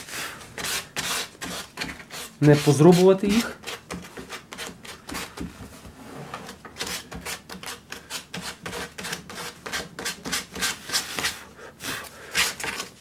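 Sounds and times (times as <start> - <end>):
sanding sponge rubbing wood: 0.6 - 5.0.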